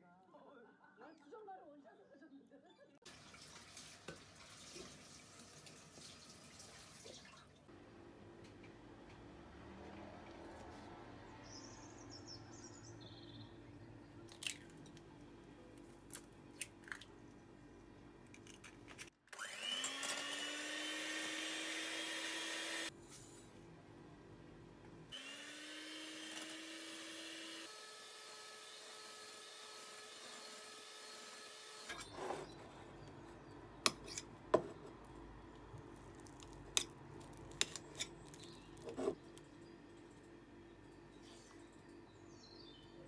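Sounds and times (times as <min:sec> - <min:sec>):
electric hand mixer whirring: 0:19.3 - 0:22.9, 0:25.1 - 0:32.0.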